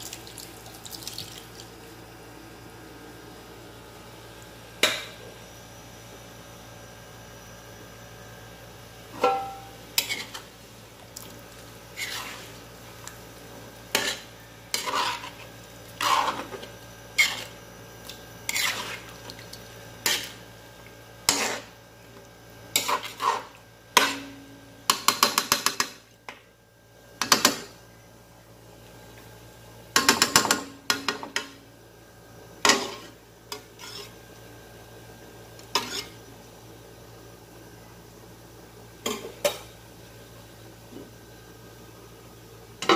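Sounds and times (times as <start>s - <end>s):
metal spatula scraping a wok: 9.3s - 10.5s, 11.9s - 12.6s, 13.9s - 16.6s, 17.2s - 17.6s, 18.5s - 19.1s, 20.0s - 20.4s, 21.2s - 21.7s, 22.8s - 24.3s, 32.7s - 34.2s, 35.7s - 36.2s.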